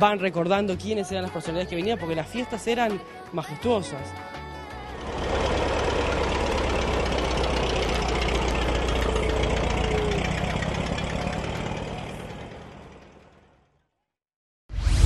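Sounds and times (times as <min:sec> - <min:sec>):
bus engine running: 0:04.6 - 0:13.8.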